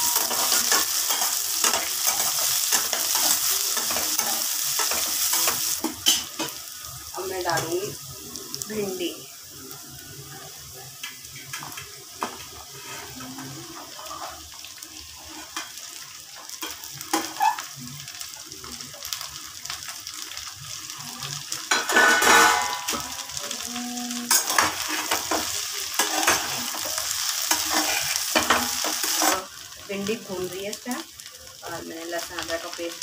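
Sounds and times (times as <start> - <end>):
spatula scraping a pan: 0.0 - 6.5, 12.6 - 14.4, 24.3 - 29.5
sizzle of frying: 0.0 - 33.0.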